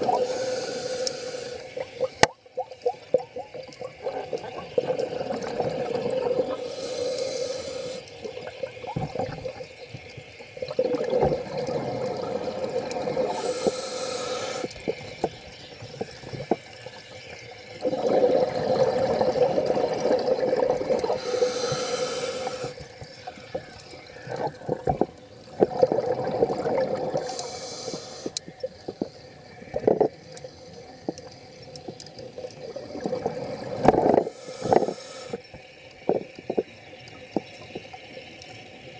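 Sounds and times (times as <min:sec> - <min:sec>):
regulator hissing inhalations: 0:00.0 - 0:03.2, 0:06.4 - 0:08.3, 0:13.2 - 0:15.0, 0:15.9 - 0:17.5, 0:20.9 - 0:24.8, 0:27.1 - 0:29.3, 0:34.1 - 0:35.5
exhaled bubbles rumbling: 0:02.1 - 0:06.6, 0:08.2 - 0:13.7, 0:17.6 - 0:21.4, 0:22.8 - 0:27.3, 0:32.3 - 0:35.0.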